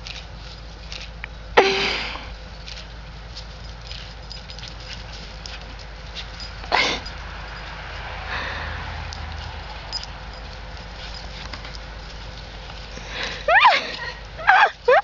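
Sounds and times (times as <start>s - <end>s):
dog barking: 14.4s - 15.0s.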